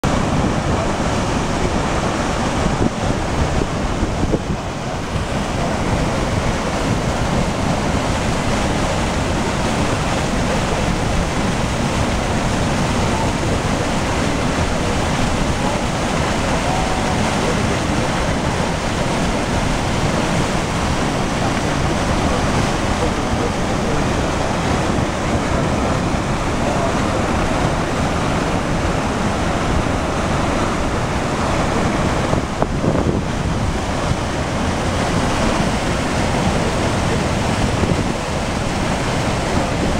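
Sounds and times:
water rushing into spillway: 0.0s - 39.9s.

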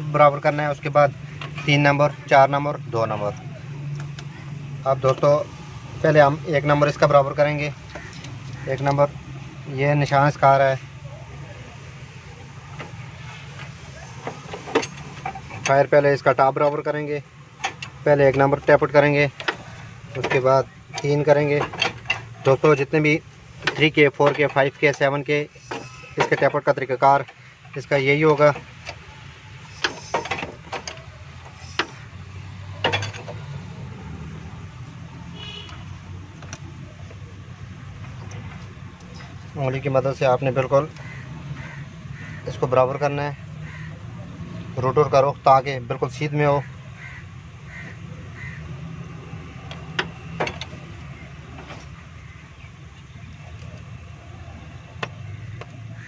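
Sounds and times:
metallic clicks and knocks: 13.6s - 15.9s, 17.5s - 22.7s, 23.6s - 29.0s, 29.7s - 33.6s, 49.5s - 52.0s.

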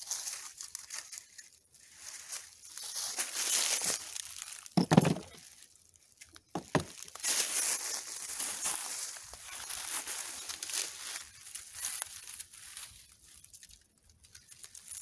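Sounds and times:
dry leaves rustling underfoot: 0.0s - 15.0s
brick knocking against brick: 4.8s - 5.4s, 6.5s - 7.0s.

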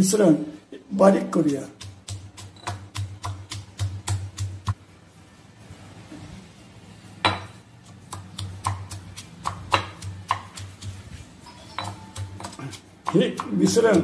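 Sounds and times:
pestle knocking in stone mortar: 1.4s - 4.8s, 8.1s - 11.0s, 11.8s - 14.0s.

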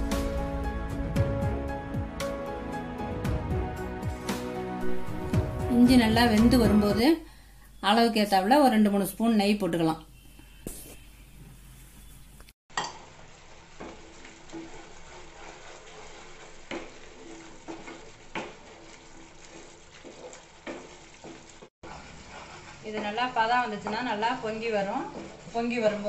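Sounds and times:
syrup bubbling and sizzling: 12.7s - 26.0s
wooden spatula scraping pan: 13.2s - 26.0s.

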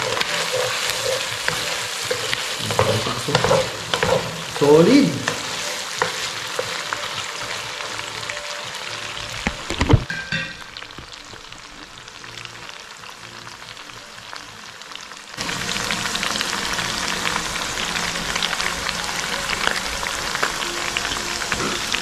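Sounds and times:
meat sizzling in a wok: 0.0s - 22.0s.

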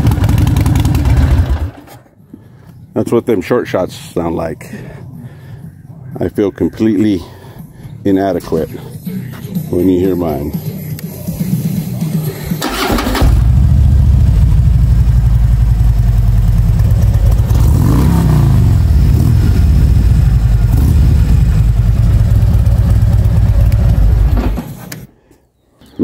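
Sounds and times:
motorcycle engine running: 0.0s - 2.0s, 12.6s - 24.8s.

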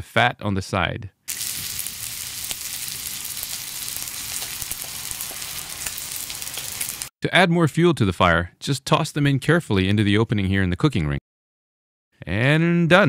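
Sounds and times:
steak sizzling in a skillet: 1.3s - 7.1s.

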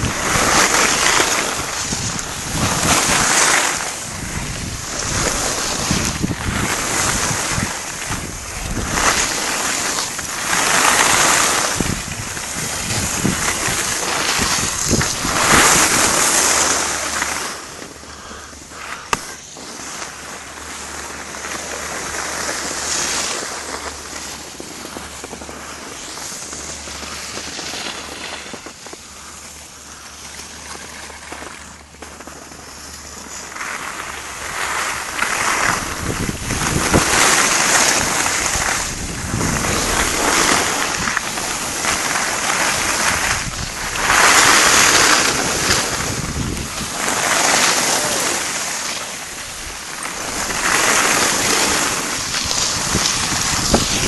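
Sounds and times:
wind on microphone: 0.0s - 17.6s, 34.0s - 54.0s
ski edges scraping snow: 0.0s - 54.0s.

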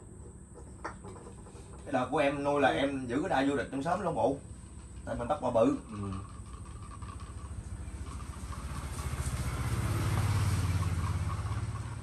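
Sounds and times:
small engine passing by: 6.4s - 12.0s.

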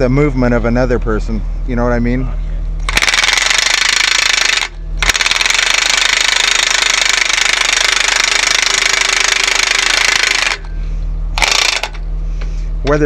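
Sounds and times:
impact wrench hammering bolt: 2.9s - 10.7s, 11.4s - 12.0s.

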